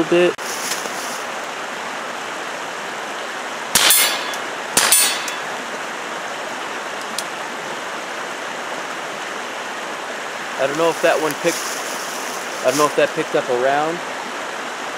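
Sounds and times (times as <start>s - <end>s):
suppressed pistol shots: 3.8s - 5.5s.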